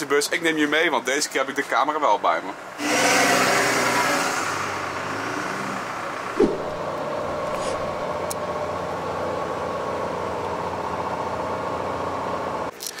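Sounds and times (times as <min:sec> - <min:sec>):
bus engine drone: 0:03.6 - 0:12.7
brief sharp sound: 0:06.4 - 0:06.9
loud rushing noise: 0:06.4 - 0:08.1.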